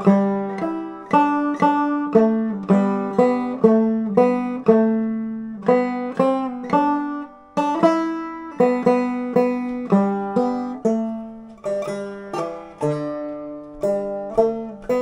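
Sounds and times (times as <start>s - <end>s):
banjo picking a melody: 0.0s - 15.0s.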